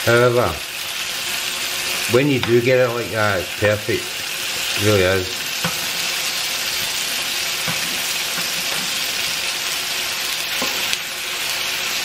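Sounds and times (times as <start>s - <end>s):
chicken sizzling in a frying pan: 0.0s - 12.0s.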